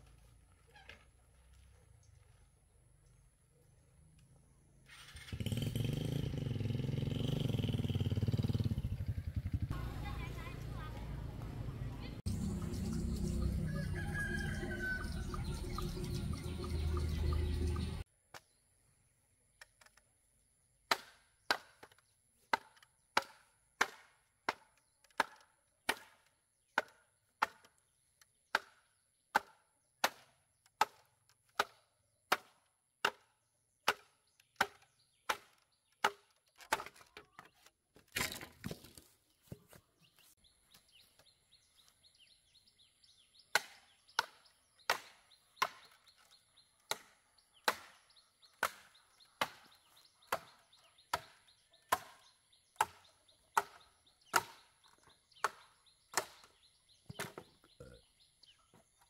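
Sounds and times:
blade chopping wood: 20.9 - 27.8, 28.5 - 39.0, 43.5 - 57.5.

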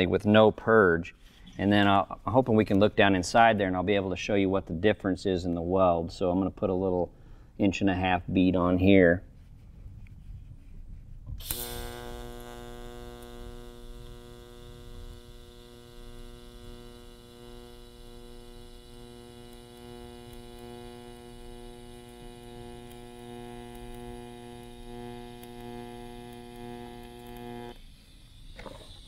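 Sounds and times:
welding arc crackle: 11.4 - 29.0
welding arc humming and buzzing: 11.4 - 29.0.

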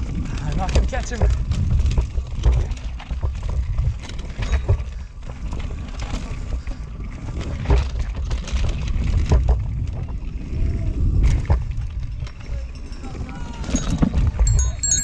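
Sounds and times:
bike knocking on rocks and roots: 0.0 - 10.3
tyre and wind rumble: 0.0 - 15.0.

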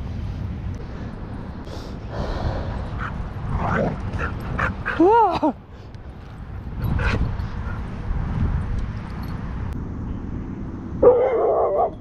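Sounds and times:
dogs yipping: 11.0 - 12.0.

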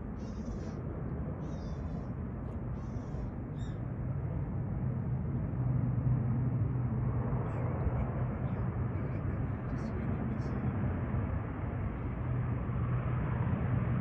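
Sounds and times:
turboprop engines droning: 0.0 - 14.0
high bird calls: 0.2 - 0.8, 1.4 - 2.0, 2.7 - 3.8.

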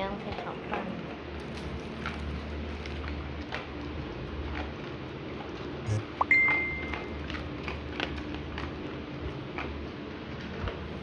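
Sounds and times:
steady low hum: 0.0 - 11.0
dog crunching kibble: 0.2 - 5.9, 6.6 - 11.0
short high tone: 5.9 - 6.9.

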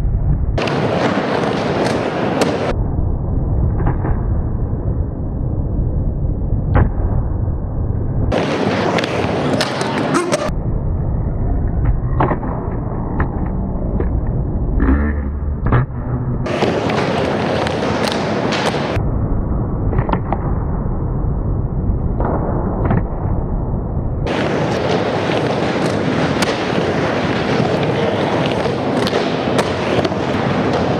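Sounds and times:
skateboard wheels rolling on concrete: 0.0 - 2.8, 7.9 - 10.6, 16.4 - 19.0, 24.2 - 30.9
skateboard clacks: 0.6 - 2.7, 8.3 - 10.5, 16.4 - 19.0, 24.3 - 30.9
skateboard harsh scraping: 8.3 - 10.5, 24.3 - 30.9.

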